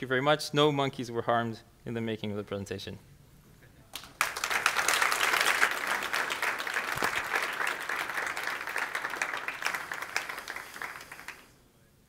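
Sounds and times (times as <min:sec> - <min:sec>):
audience applauding: 0:04.0 - 0:11.6.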